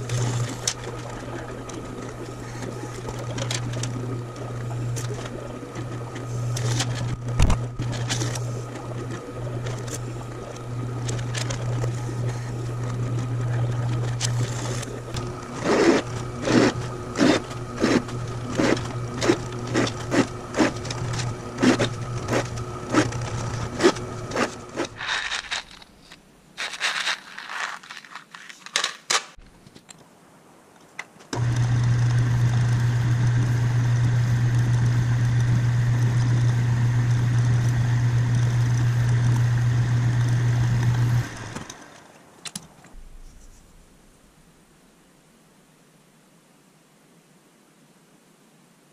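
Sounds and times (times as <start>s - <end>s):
metal lathe running: 0.0s - 25.2s, 31.4s - 41.8s
drill press motor running: 0.0s - 25.8s, 31.4s - 42.1s
handling clicks and knocks: 18.7s - 30.1s.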